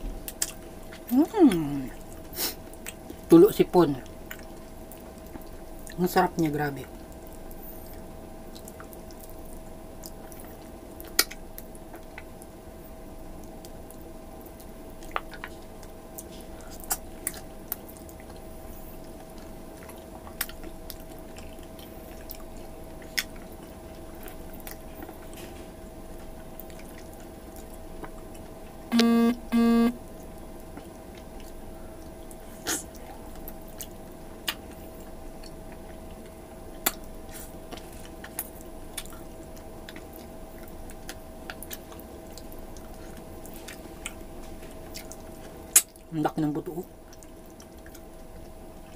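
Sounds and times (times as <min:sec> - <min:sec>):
faint steady hum: 0:00.0 - 0:48.9
person chewing food: 0:00.1 - 0:03.3, 0:04.0 - 0:25.4, 0:26.2 - 0:29.9, 0:30.8 - 0:46.1, 0:47.0 - 0:48.9
short loud beeps: 0:28.9 - 0:30.0.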